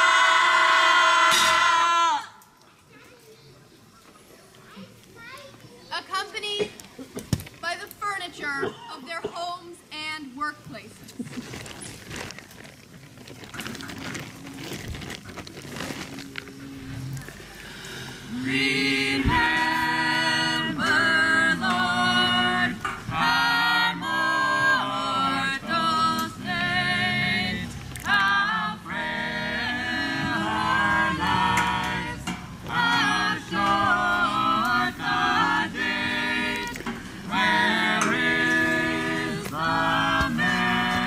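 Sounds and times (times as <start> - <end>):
choir singing unaccompanied: 0.0 - 2.4, 18.1 - 41.0.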